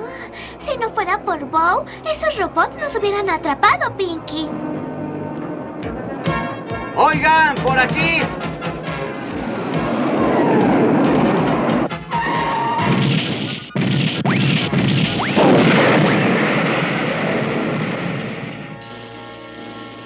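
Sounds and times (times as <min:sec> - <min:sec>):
background music: 0:00.0 - 0:20.0
quick rising whistles: 0:09.8 - 0:13.0
cartoon falling whistle: 0:12.1 - 0:13.0.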